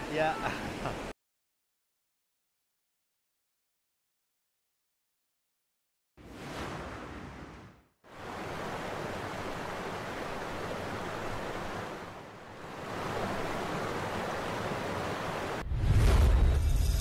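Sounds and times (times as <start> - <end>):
waterfall rushing: 8.2 - 15.6.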